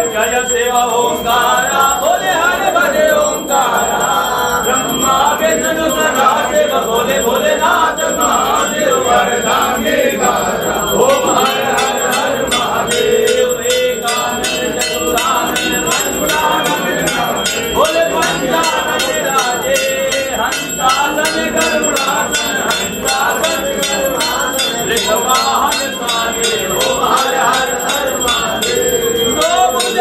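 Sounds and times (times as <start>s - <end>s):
hand bell ringing: 0.0s - 30.0s
voices singing a devotional chant: 0.0s - 30.0s.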